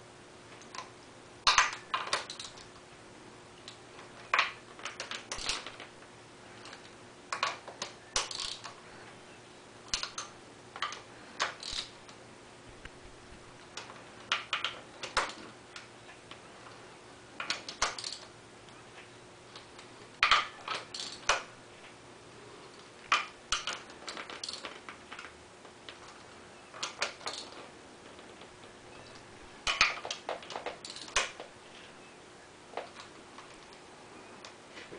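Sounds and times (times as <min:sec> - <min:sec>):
hand ratchet clicking: 0:09.9 - 0:12.0, 0:17.4 - 0:18.3.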